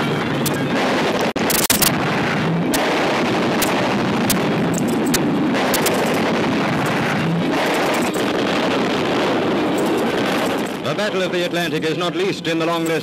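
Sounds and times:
aircraft engine roar: 0.0s - 13.0s
film clicks: 3.6s - 6.2s.

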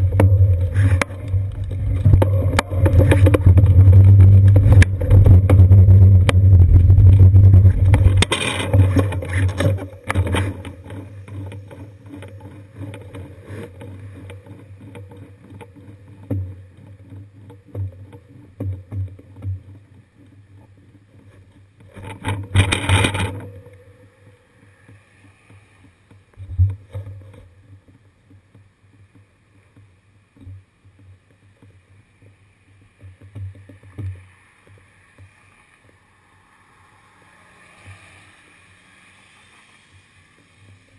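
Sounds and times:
wind and road rumble: 0.0s - 29.4s, 32.1s - 40.9s
low traffic noise: 33.7s - 40.9s
loud rush of passing vehicle: 35.5s - 40.9s.

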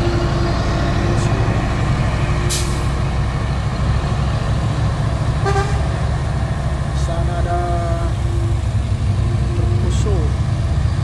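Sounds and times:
truck diesel engine pulling hard: 0.0s - 11.0s
truck horn toot: 5.4s - 5.9s.

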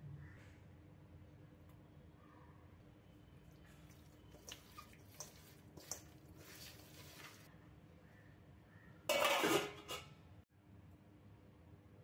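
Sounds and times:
wet squelches of meat squished by hand: 3.5s - 7.5s.

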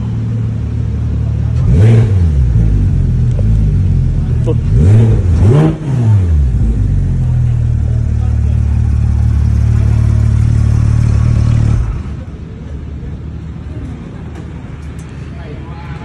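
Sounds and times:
car engine idling: 0.0s - 16.0s
car engine revving: 0.3s - 12.3s.

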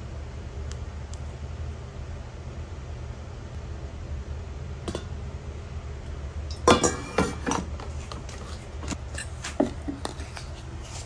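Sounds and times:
glass and metal clinks: 6.5s - 7.6s.

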